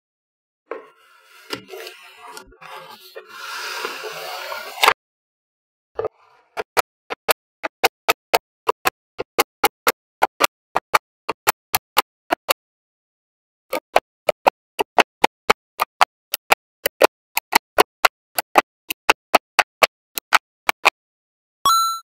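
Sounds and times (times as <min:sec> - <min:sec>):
magnetic balls clicking: 0:13.7 - 0:20.9.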